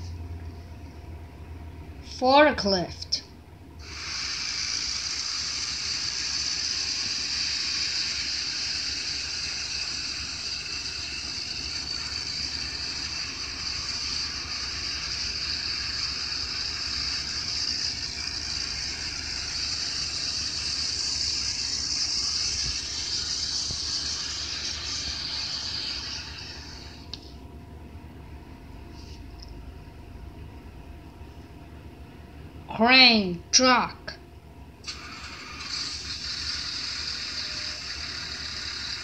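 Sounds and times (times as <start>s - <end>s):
steady rushing hiss: 3.8s - 27.2s, 34.9s - 39.0s.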